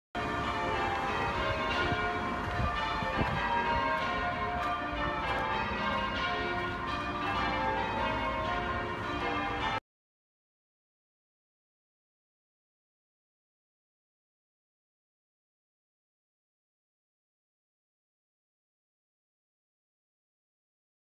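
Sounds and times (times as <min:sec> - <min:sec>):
church bell ringing: 0:00.2 - 0:09.8.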